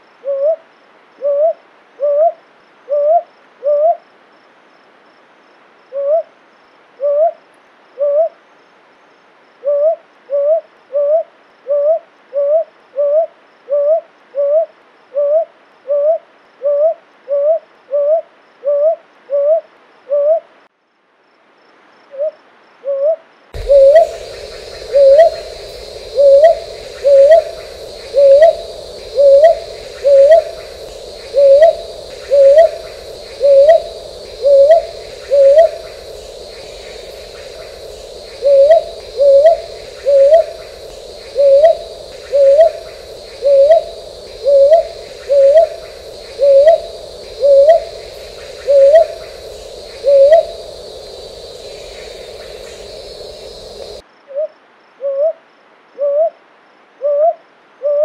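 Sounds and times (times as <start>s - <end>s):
high background hiss: 0.0s - 58.0s
owl hooting: 22.9s - 55.3s.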